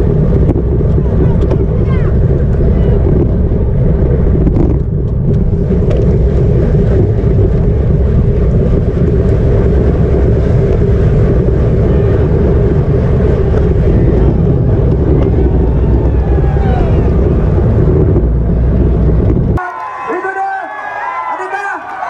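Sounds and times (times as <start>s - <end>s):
wind rumble on microphone: 0.0s - 19.6s.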